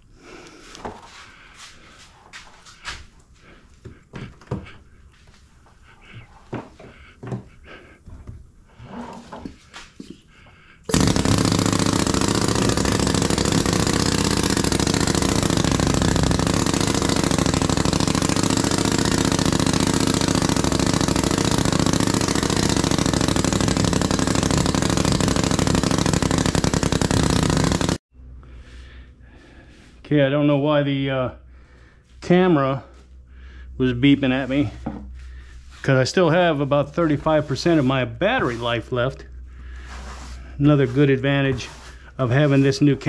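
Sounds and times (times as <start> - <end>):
pneumatic sand rammer hammering: 10.9 - 28.0, 34.3 - 43.0
hands scraping loose sand: 34.0 - 39.1, 39.7 - 43.0.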